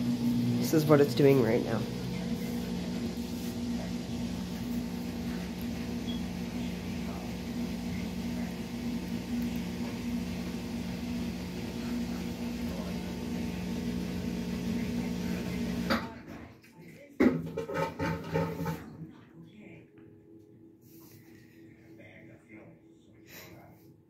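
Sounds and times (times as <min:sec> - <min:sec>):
washing machine humming: 0:00.0 - 0:16.6, 0:17.2 - 0:19.2.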